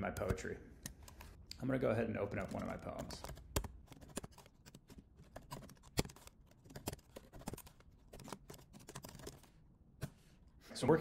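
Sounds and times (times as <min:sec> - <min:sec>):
typing on computer keyboard: 0:02.3 - 0:09.5.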